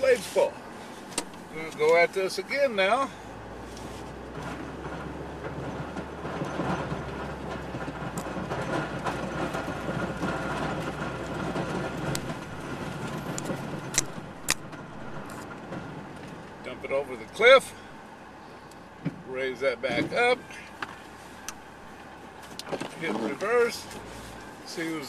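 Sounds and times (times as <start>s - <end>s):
truck engine under load: 0.0s - 25.0s
rumbling rattle: 4.2s - 18.0s.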